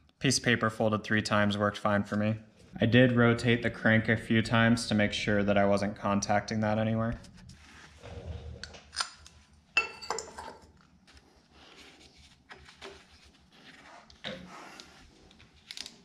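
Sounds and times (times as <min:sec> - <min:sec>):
tools clinking on metal: 0:09.8 - 0:10.7.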